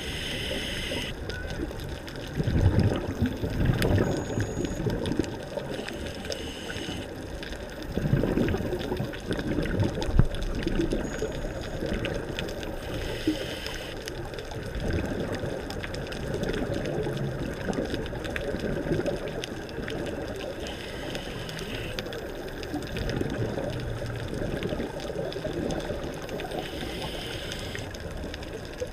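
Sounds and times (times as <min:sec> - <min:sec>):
bubbling exhaled air: 0:00.0 - 0:01.2, 0:02.4 - 0:07.2, 0:07.8 - 0:11.0, 0:12.7 - 0:14.0, 0:16.3 - 0:28.9
regulator inhale hiss: 0:00.0 - 0:01.2, 0:05.7 - 0:07.2, 0:12.8 - 0:14.1, 0:20.6 - 0:22.1, 0:26.4 - 0:28.0.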